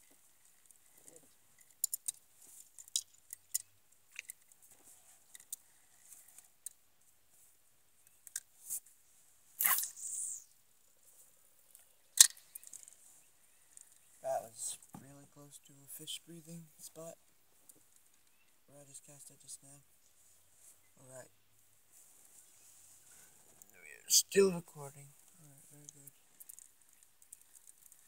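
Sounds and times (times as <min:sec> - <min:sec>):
rod and reel handling clicks: 0:01.6 - 0:04.6, 0:12.2 - 0:13.0
sharp reel click: 0:09.6 - 0:10.4.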